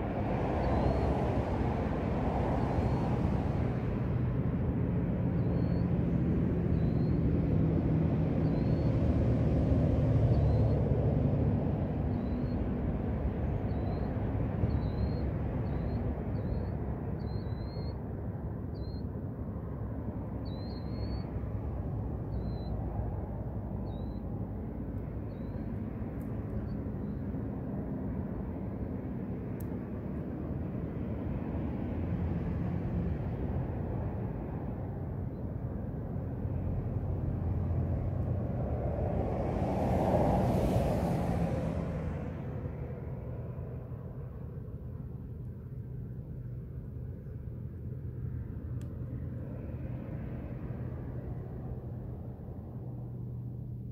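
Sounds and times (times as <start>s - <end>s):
vehicle engine rumble: 0.0s - 53.9s
bird chirping: 14.7s - 18.0s, 20.4s - 21.3s.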